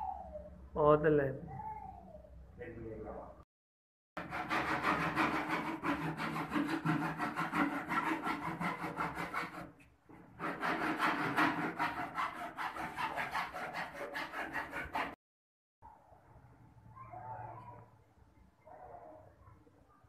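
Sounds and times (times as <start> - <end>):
hand saw cutting pipe: 4.2 - 9.7, 10.4 - 15.2.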